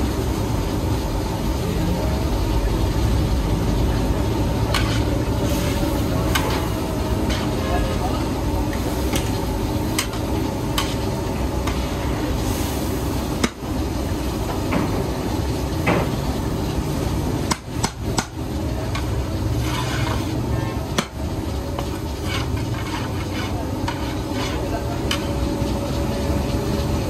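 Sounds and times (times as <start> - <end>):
boiling rush: 0.0 - 27.0
metal ladle scraping pot: 4.7 - 7.9, 19.0 - 20.3, 21.8 - 25.4.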